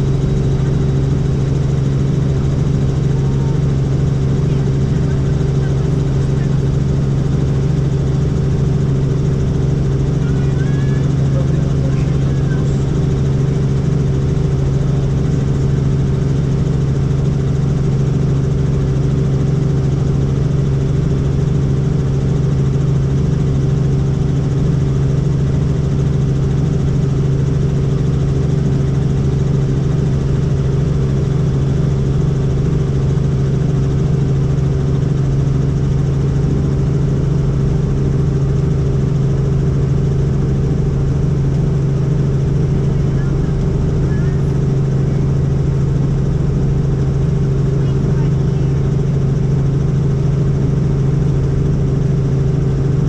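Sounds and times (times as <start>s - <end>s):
helicopter engine and rotors: 0.0s - 53.0s.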